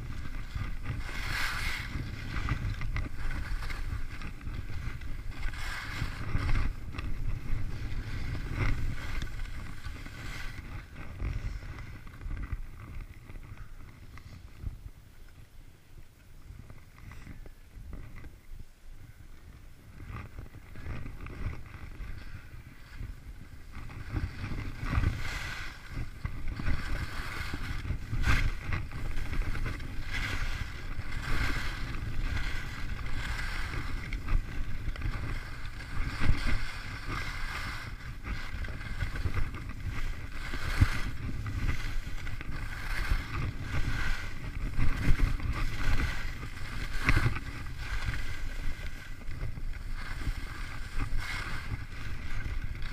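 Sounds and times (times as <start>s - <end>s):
skis hissing on packed snow: 0.0s - 11.7s, 23.6s - 52.9s
wind rushing over microphone: 0.0s - 52.9s.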